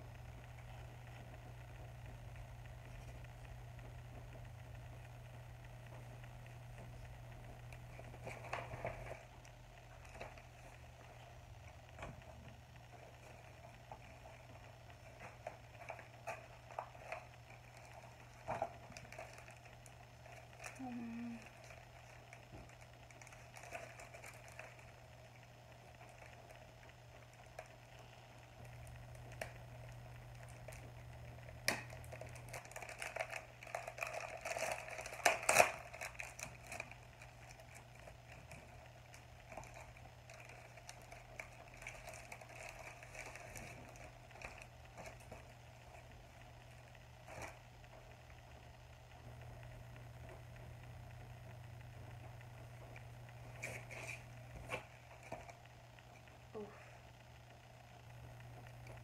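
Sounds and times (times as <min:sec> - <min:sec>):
low steady hum: 0:00.0 - 0:59.0
sharp crackles and clicks: 0:00.0 - 0:59.0
packaging rustling and crinkling: 0:07.8 - 0:27.9, 0:31.6 - 0:46.2.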